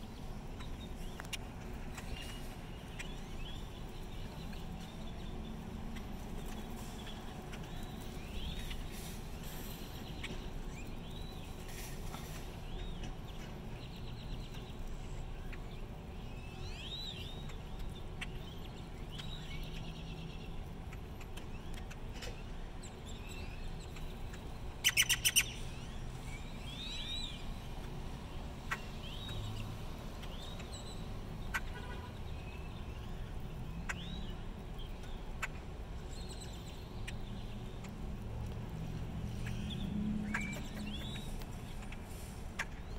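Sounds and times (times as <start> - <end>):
grackles whistling calls: 24.8 - 25.6.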